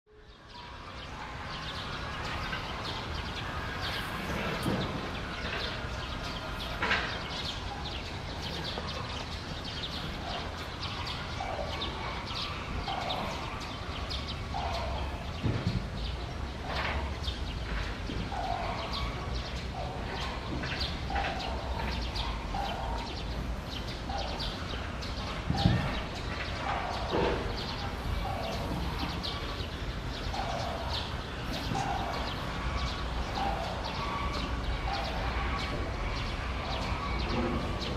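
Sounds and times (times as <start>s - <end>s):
sharp knocks: 15.4s - 16.1s.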